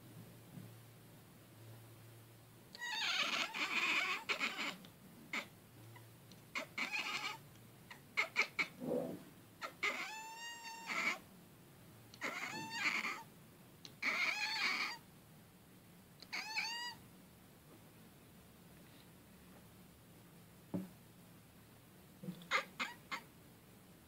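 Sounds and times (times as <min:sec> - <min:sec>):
cat chattering: 0:02.8 - 0:05.5, 0:06.5 - 0:08.8, 0:09.6 - 0:11.2, 0:12.2 - 0:13.3, 0:14.0 - 0:15.0, 0:16.2 - 0:17.0, 0:22.5 - 0:23.3
cat chirping call: 0:02.8 - 0:05.5, 0:06.6 - 0:08.8, 0:09.6 - 0:11.2, 0:12.2 - 0:13.3, 0:14.0 - 0:15.0, 0:16.2 - 0:17.0, 0:22.5 - 0:23.3.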